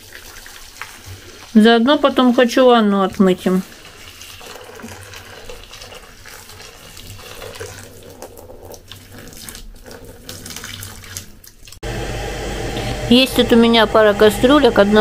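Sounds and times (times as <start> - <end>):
water pouring and splashing into basin: 0.0 - 11.8.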